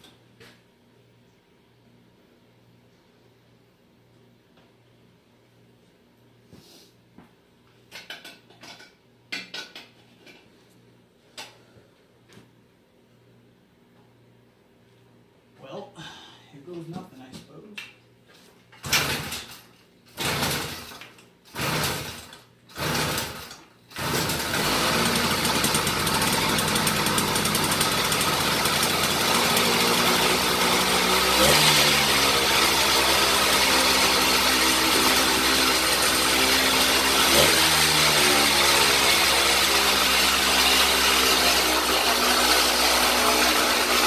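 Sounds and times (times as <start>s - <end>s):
two-stroke engine starting and running: 18.8s - 44.0s.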